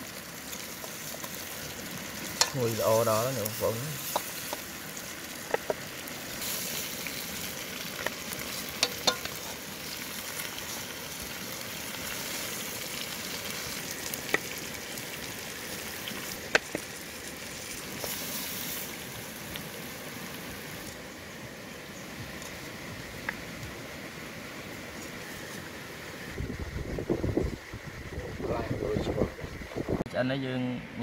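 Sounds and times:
steady hiss: 0.0s - 31.0s
spoon stirring food in pot: 8.8s - 9.5s.

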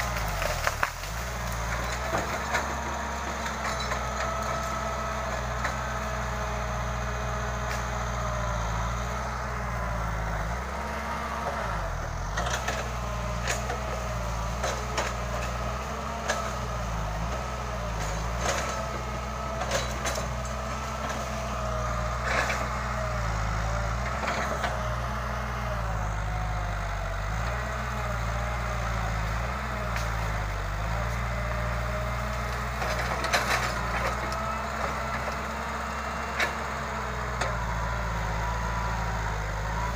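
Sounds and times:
wood and branches snapping: 0.0s - 1.8s
excavator diesel engine running: 0.0s - 39.9s.

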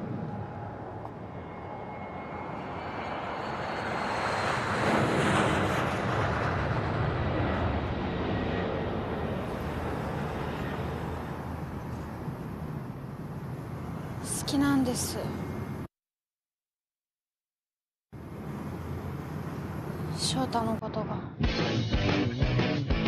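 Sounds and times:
jet aircraft passing overhead: 0.0s - 15.9s, 18.2s - 20.6s.

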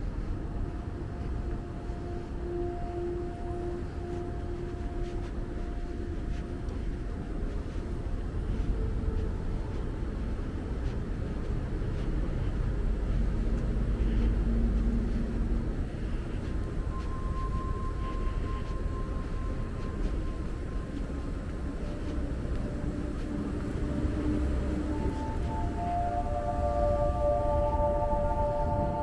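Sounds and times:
low road rumble: 0.0s - 29.0s
vehicle passing: 19.5s - 29.0s.

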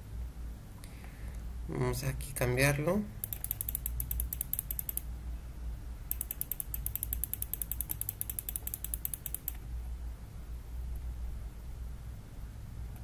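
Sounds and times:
mouse scroll wheel clicking: 3.2s - 5.0s, 6.1s - 9.6s.

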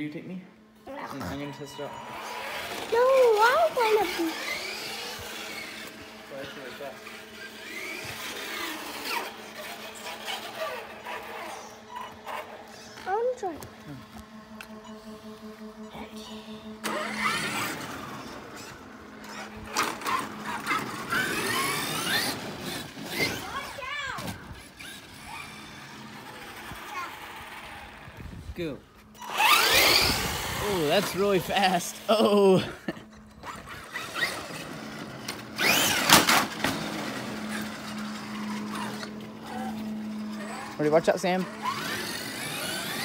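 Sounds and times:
electric motor whining: 0.0s - 43.0s
steady low hum: 0.0s - 43.0s
tyres rushing: 33.4s - 43.0s.

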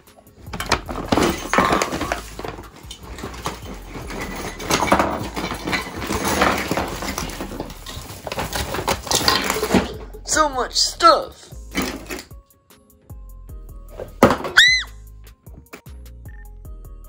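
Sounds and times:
ornaments clattering on wooden floor: 0.0s - 10.2s, 11.6s - 12.4s, 14.0s - 14.9s.

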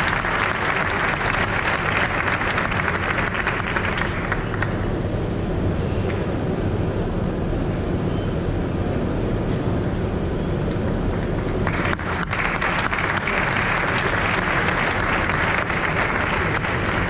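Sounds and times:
audience applause: 0.0s - 4.7s, 11.2s - 17.0s.

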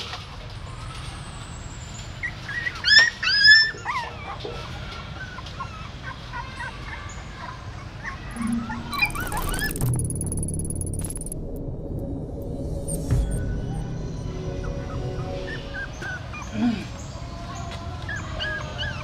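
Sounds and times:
puppies whimpering and squealing: 1.0s - 10.0s, 14.0s - 19.0s.

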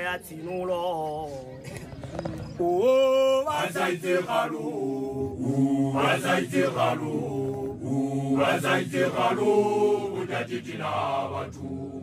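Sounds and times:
male voices chanting: 2.6s - 12.0s.

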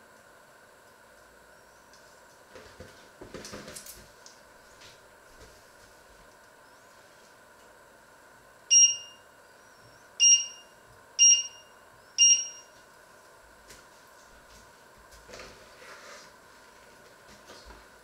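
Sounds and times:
short high beeps: 8.7s - 9.2s, 10.2s - 12.7s.

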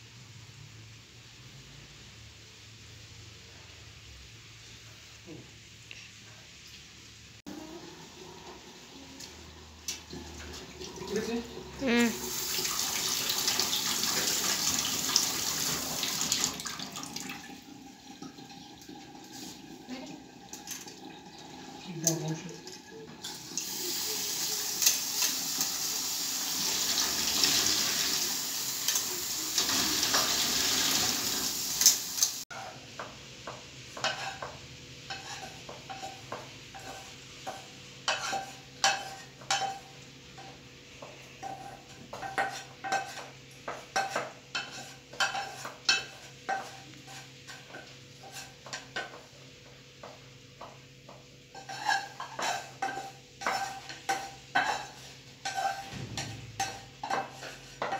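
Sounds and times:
tap water running into a pot: 7.6s - 11.6s, 12.2s - 32.4s
spoon scraping metal frying pan: 34.0s - 40.6s, 41.4s - 49.2s, 51.5s - 57.9s.

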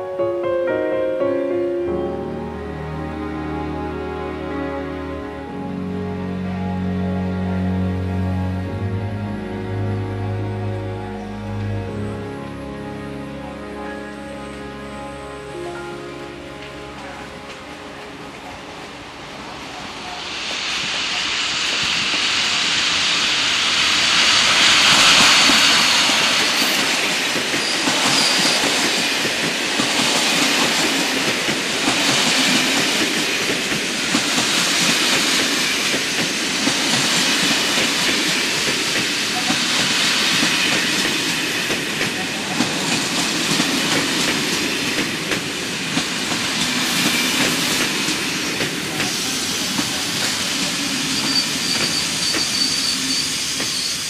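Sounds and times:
electric locomotive passing: 0.0s - 54.0s
faint high wheel squeals: 27.6s - 28.7s, 50.9s - 54.0s.

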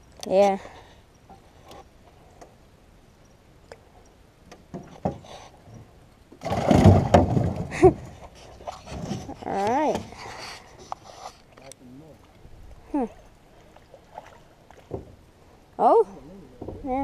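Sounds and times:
rattling in aluminum boat: 4.5s - 15.4s, 16.4s - 17.0s.

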